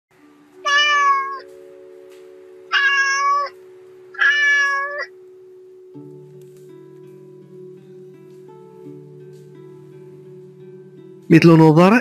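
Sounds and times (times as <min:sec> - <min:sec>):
faint steady tone: 0:00.2 - 0:11.7
kittens mewing: 0:02.7 - 0:03.6, 0:04.2 - 0:05.2.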